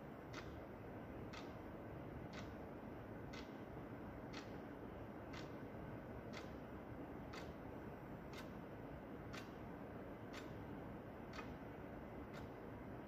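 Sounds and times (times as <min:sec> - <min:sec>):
clock ticking: 0:00.3 - 0:00.6, 0:01.3 - 0:01.6, 0:02.2 - 0:02.6, 0:03.3 - 0:03.6, 0:04.3 - 0:04.6, 0:05.3 - 0:05.6, 0:06.3 - 0:06.6, 0:07.3 - 0:07.6, 0:08.3 - 0:08.6, 0:09.3 - 0:09.5, 0:10.3 - 0:10.6, 0:11.3 - 0:11.6, 0:12.3 - 0:12.6.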